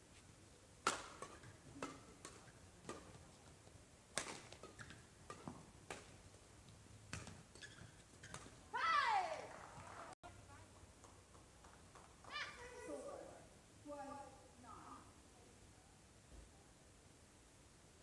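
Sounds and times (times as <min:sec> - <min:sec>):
rackets hitting shuttlecock: 0:00.8 - 0:03.4, 0:04.1 - 0:06.3, 0:07.1 - 0:09.5.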